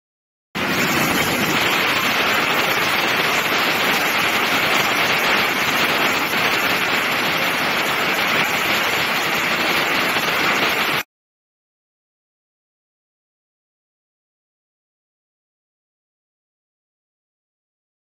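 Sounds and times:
waterfall rushing: 0.6 - 11.0.

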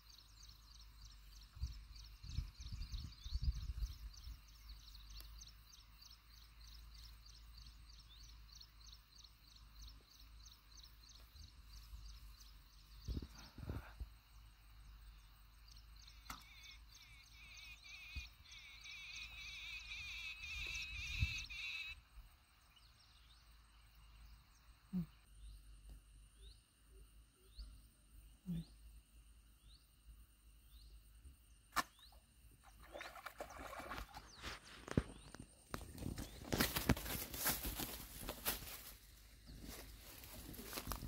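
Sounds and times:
birds singing: 0.0 - 22.0
fish splashing at water surface: 32.7 - 34.4.

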